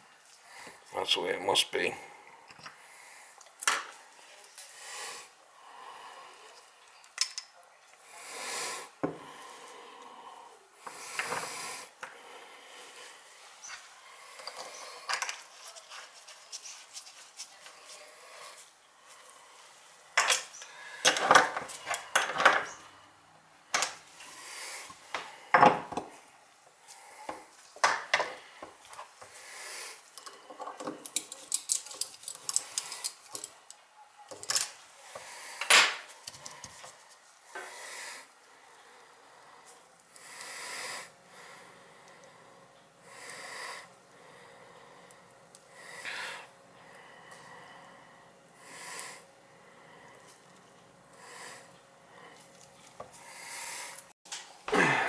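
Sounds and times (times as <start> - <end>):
soft rubbing: 14.8 - 19.8.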